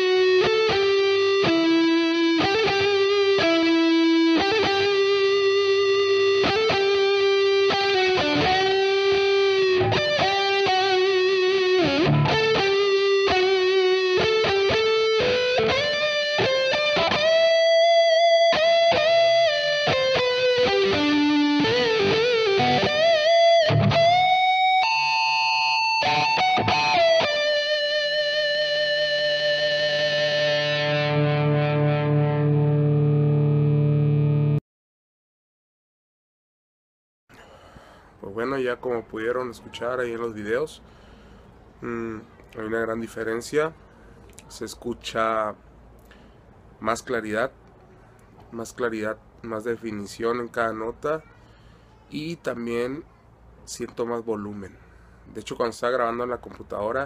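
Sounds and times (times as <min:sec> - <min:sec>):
distorted electric guitar lead: 0:00.0 - 0:34.6.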